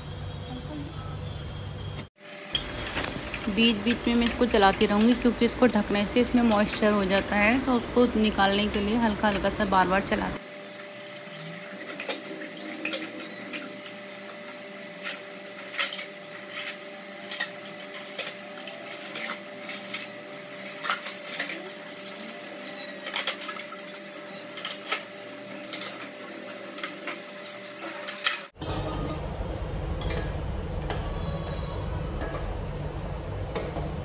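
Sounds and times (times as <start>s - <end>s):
steel utensils clinking: 2.5s - 10.3s, 11.6s - 14.1s, 14.9s - 28.8s.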